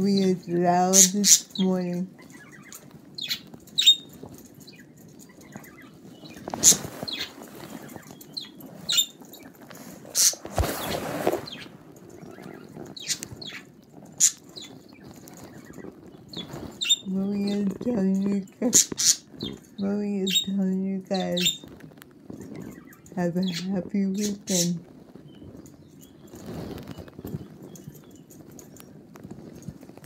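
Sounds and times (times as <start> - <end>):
budgerigars chirping: 0.1 - 9.5, 11.5 - 19.6, 20.2 - 21.8, 22.4 - 24.8
wings flapping: 5.2 - 30.0.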